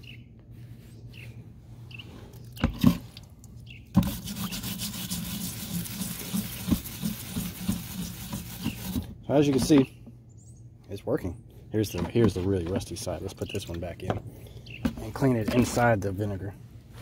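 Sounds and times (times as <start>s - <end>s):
scrub brush scrubbing metal: 4.0s - 9.7s.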